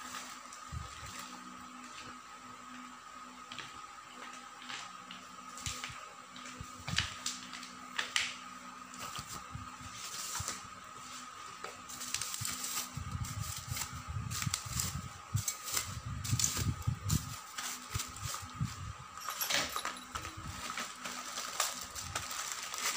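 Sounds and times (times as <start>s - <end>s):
plastic wrap crinkling: 12.0s - 18.6s, 20.2s - 22.9s.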